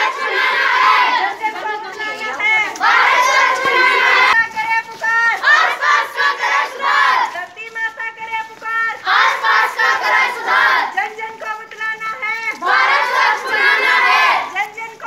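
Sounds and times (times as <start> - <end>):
group shouting slogans back: 0.0 - 4.4, 5.1 - 7.4, 9.0 - 11.0, 12.5 - 14.6.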